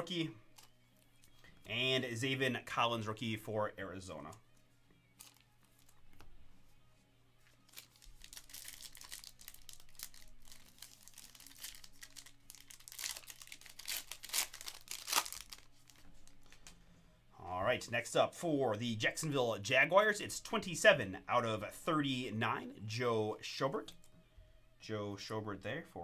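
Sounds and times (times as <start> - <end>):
foil wrapper tearing and crinkling: 7.6 - 16.4.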